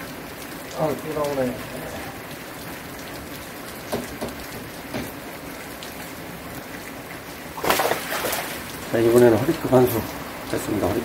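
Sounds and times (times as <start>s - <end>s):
rain falling: 0.0s - 11.0s.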